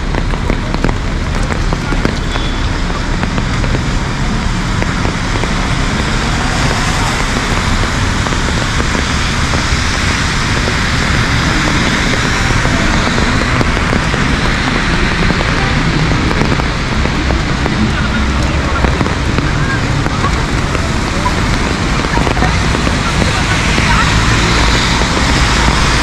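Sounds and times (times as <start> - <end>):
heavy rain on street: 0.0 - 26.0
traffic hissing on wet road: 0.0 - 26.0.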